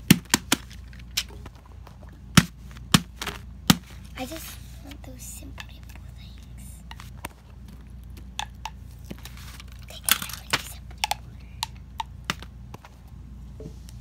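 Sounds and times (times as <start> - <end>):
plastic toys clicking and tapping: 4.3 - 12.5.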